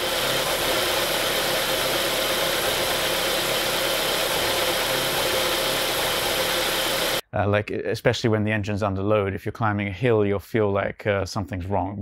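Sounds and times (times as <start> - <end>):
car engine idling with misfire: 0.0 - 7.2.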